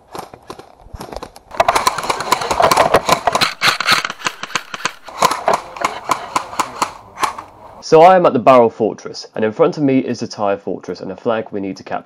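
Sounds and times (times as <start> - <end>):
airsoft rifle firing bursts: 1.5 - 7.6.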